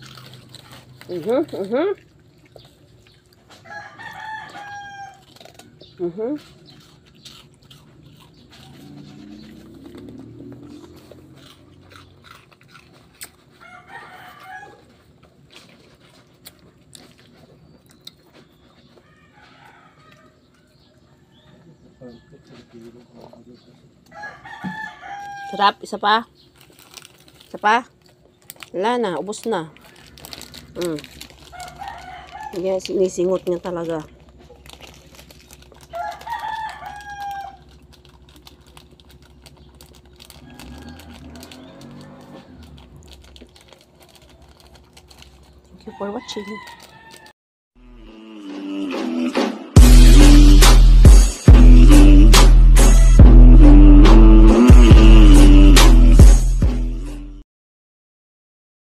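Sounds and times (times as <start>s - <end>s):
dog chewing and crunching: 0.0s - 47.3s
rooster crowing: 3.5s - 5.4s, 13.6s - 15.0s, 19.0s - 22.9s, 24.0s - 25.8s, 31.5s - 33.0s, 35.8s - 37.8s, 40.3s - 42.9s, 45.8s - 47.3s.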